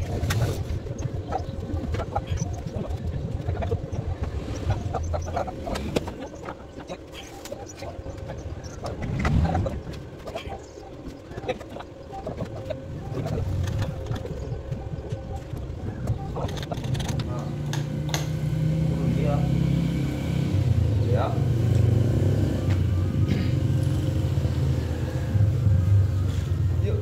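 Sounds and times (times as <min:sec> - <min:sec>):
bird calling: 0:00.0 - 0:17.8.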